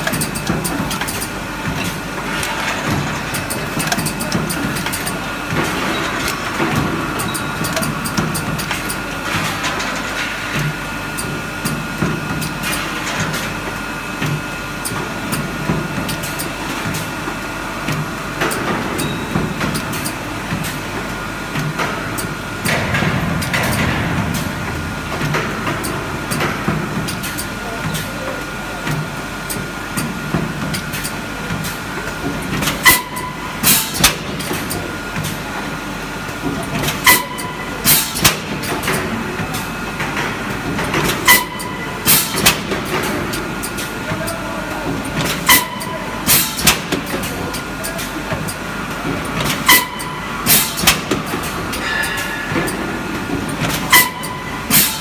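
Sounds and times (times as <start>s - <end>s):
machine parts clicking and clacking: 0.0s - 11.8s.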